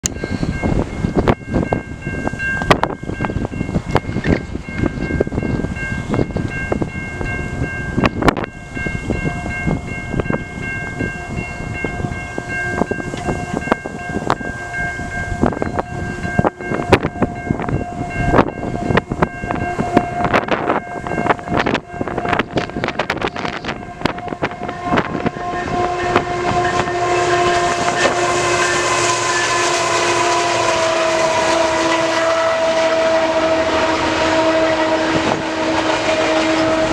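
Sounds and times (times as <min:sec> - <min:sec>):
train rumble: 0:00.0 - 0:36.9
wind on microphone: 0:00.0 - 0:36.9
train air horn: 0:11.0 - 0:36.9.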